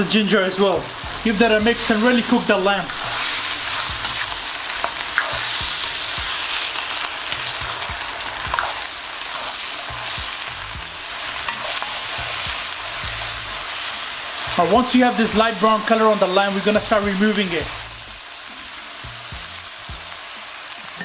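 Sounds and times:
meat sizzling in hot oil: 0:00.0 - 0:21.0
spoon scraping pan: 0:02.2 - 0:06.7, 0:07.3 - 0:10.2, 0:11.4 - 0:12.8.

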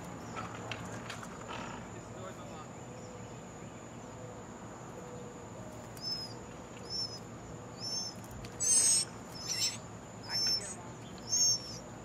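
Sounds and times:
nestlings chirping: 0:05.8 - 0:12.0.

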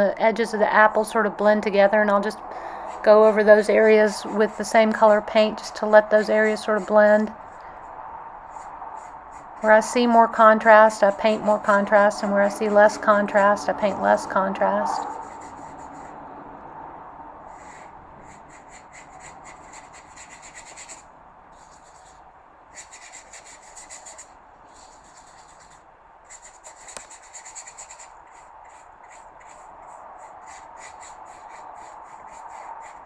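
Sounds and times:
paintbrush scrubbing paper: 0:03.0 - 0:07.6, 0:08.5 - 0:13.0, 0:15.0 - 0:16.2, 0:17.5 - 0:21.0, 0:21.6 - 0:33.0.

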